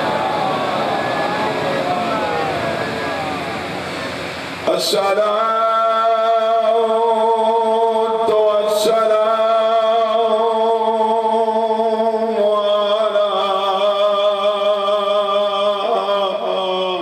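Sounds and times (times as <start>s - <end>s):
man chanting: 0.0s - 3.8s, 4.6s - 17.0s.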